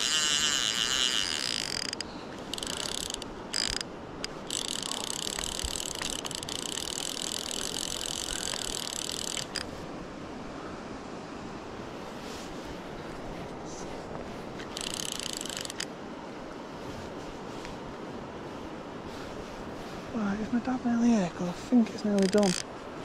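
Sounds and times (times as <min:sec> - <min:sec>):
fishing reel drag buzzing: 0:00.0 - 0:09.7, 0:14.6 - 0:15.9, 0:22.1 - 0:22.7
river water rushing: 0:00.0 - 0:23.0.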